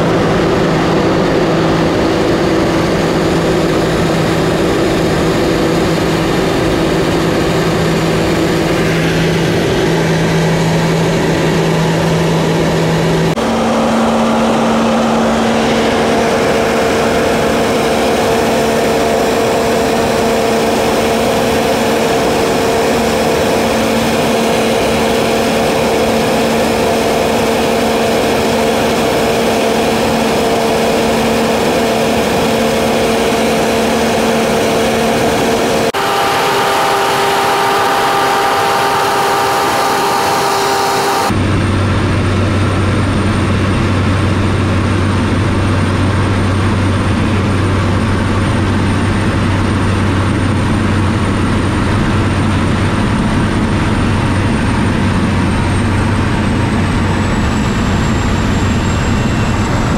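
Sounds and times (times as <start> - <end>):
propeller engine droning: 0.0 - 59.9.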